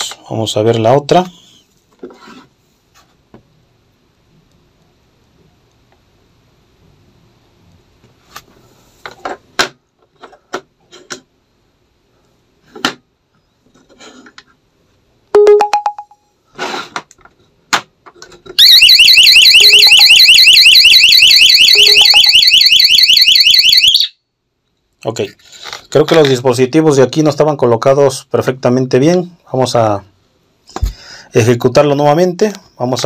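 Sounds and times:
short beep: 15.4 - 16.2
alarm siren warbling: 18.6 - 24.2.

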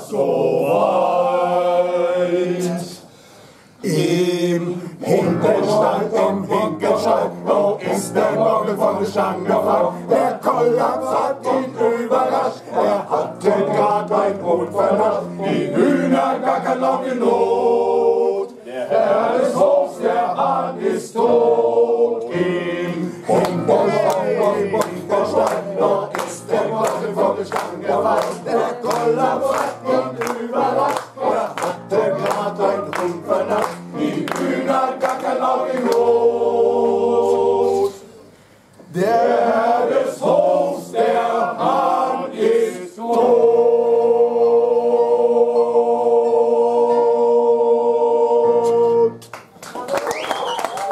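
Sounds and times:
men's choir singing: 0.0 - 3.1, 3.8 - 38.1, 38.9 - 49.2
rhythmic hand clapping: 23.3 - 36.1, 49.2 - 50.9.

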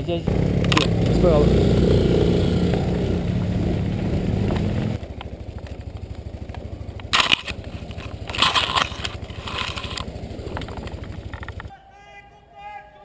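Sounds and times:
buggy engine running: 0.0 - 11.7.

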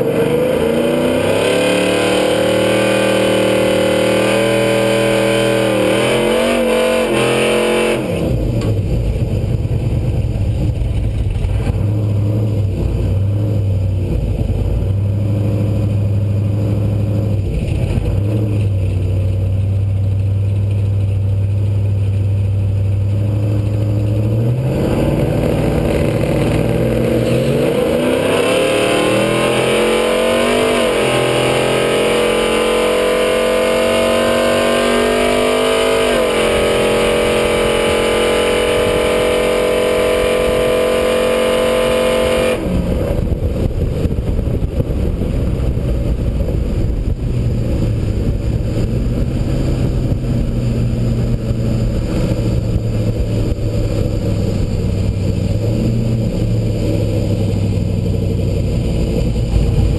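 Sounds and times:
truck engine at full throttle: 0.0 - 59.9
low exhaust rumble: 8.1 - 29.2, 42.2 - 59.9
rushing noise: 24.0 - 59.9.

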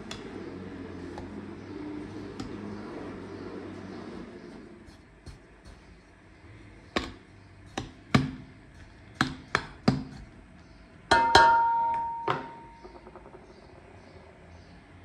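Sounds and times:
metal bowl ringing: 11.1 - 13.3
taps on a metal bowl: 11.1 - 13.8.

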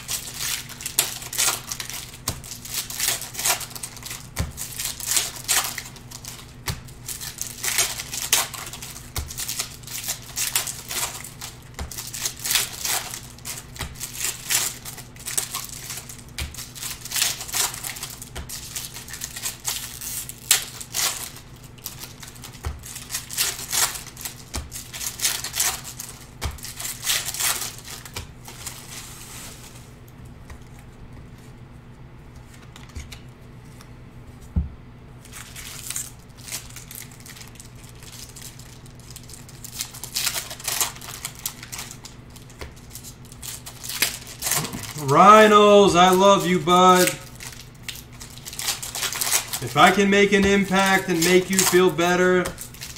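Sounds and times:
foil wrappers crinkling and tearing: 0.0 - 30.0, 35.2 - 52.9
steady low hum: 0.0 - 52.9
cards being handled: 48.1 - 52.9.

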